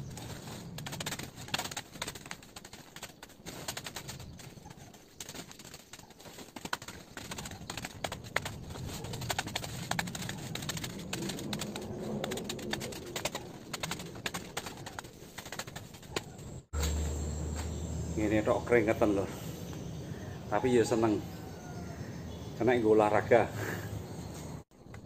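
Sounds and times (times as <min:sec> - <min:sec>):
leaves rustling and crackling: 0:00.0 - 0:19.1
low steady hum: 0:16.4 - 0:20.4.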